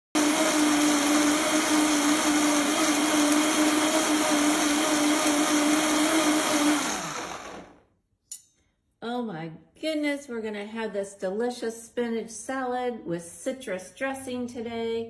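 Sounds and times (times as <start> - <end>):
blender motor whine: 0.2 - 7.8
liquid churning in blender: 0.2 - 7.8.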